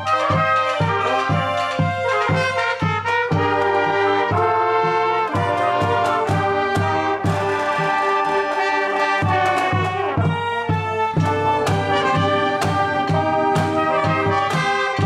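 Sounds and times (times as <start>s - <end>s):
marching band brass playing: 0.0s - 15.0s
steady drum beat: 0.0s - 15.0s.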